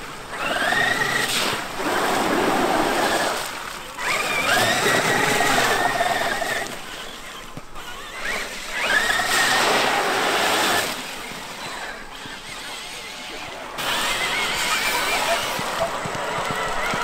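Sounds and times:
tyres hissing on wet sand: 1.1 - 3.4, 9.2 - 11.0
electric motor whining: 4.0 - 17.0.

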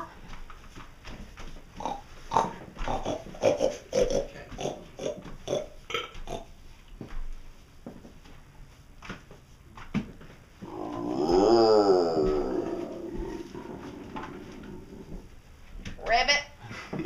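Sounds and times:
pig-like grunts and snorts: 1.8 - 6.5, 10.6 - 15.2.

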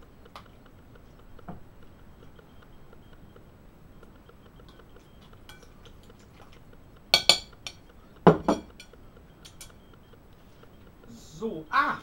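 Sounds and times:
glass bowl clinking: 7.2 - 8.9.

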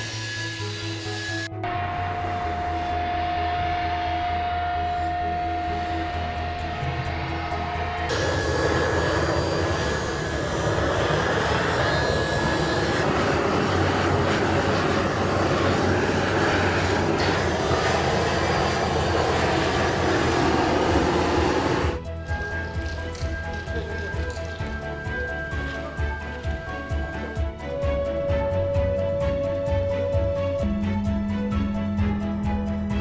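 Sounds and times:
loud mechanical roar: 0.0 - 22.0.

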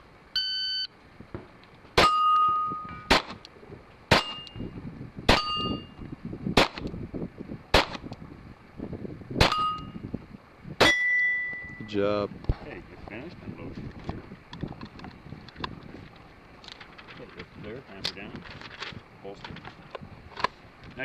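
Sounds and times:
shot timer beep: 0.4 - 0.9, 10.9 - 11.9
steel target plate ringing: 2.0 - 3.2, 4.1 - 4.7, 5.3 - 6.0, 9.4 - 10.0, 10.8 - 12.0
pistol shots: 3.1 - 3.4, 4.1 - 4.5, 7.7 - 8.0.

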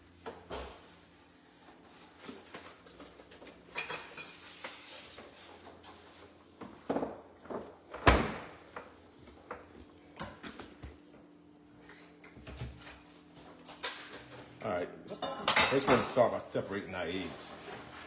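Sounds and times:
kitchen items knocking and clattering: 2.2 - 6.0, 6.6 - 11.0, 15.2 - 16.3.

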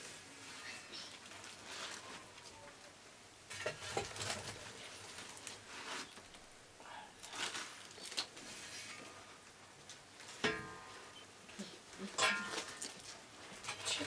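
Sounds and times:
embers clattering: 9.9 - 11.2, 11.8 - 14.0
metal scoop scraping metal pan: 12.2 - 12.8.

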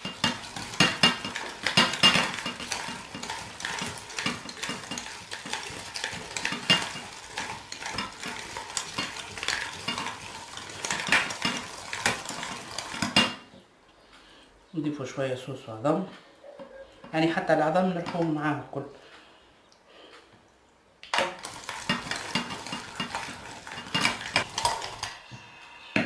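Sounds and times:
food mill metallic scraping: 0.0 - 13.5, 21.1 - 26.0.

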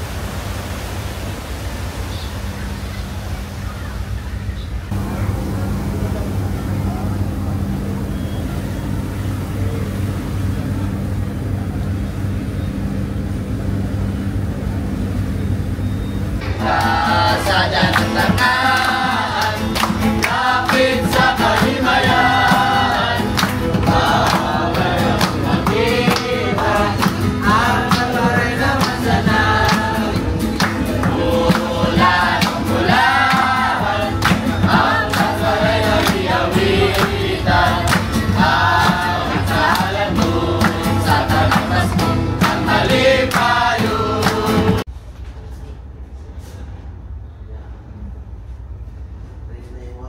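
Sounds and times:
acoustic guitar: 15.3 - 45.1
group singing in chorus: 16.4 - 44.9
rhythmic hand-clapping: 16.6 - 44.8.

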